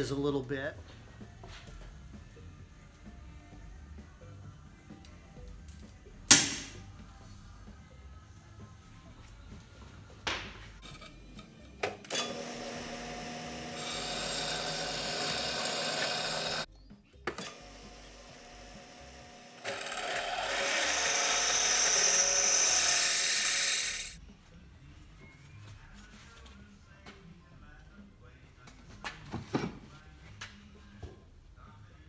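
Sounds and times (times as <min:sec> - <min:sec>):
drill press drilling into steel: 0:12.0 - 0:16.7, 0:17.4 - 0:24.2.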